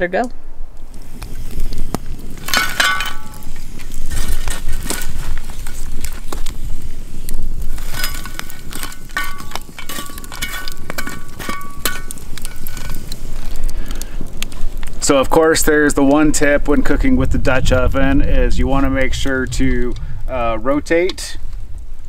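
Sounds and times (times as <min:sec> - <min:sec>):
metal clinking on cast iron: 0:02.4 - 0:03.6, 0:07.8 - 0:13.2.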